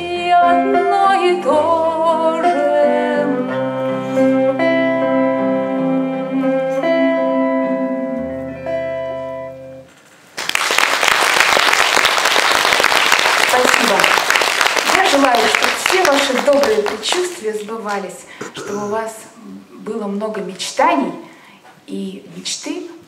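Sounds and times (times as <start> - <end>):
woman singing: 0.0 - 4.0, 6.0 - 8.2
acoustic guitar: 0.0 - 10.4
audience applause: 10.4 - 17.4.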